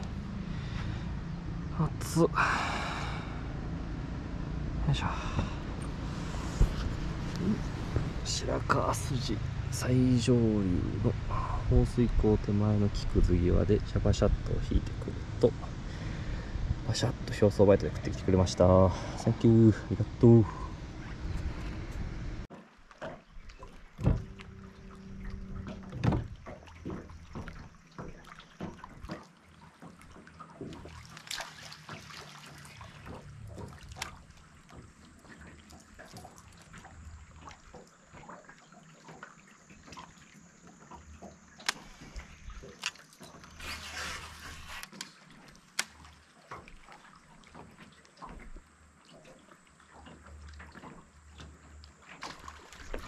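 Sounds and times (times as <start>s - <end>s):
water lapping around a boat: 0.0s - 53.0s.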